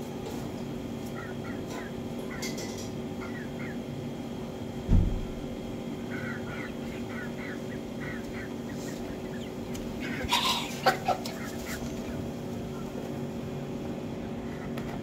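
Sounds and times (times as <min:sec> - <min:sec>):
hens clucking: 0:00.4 - 0:04.5, 0:05.8 - 0:15.0
hen squawk: 0:01.1 - 0:03.8, 0:06.0 - 0:12.9
low thump: 0:04.9 - 0:05.4.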